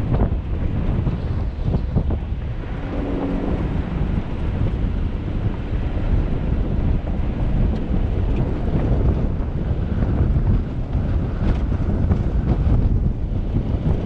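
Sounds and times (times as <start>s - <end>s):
vehicle rumbling on gravel: 0.0s - 14.0s
wind buffeting microphone: 0.0s - 14.0s.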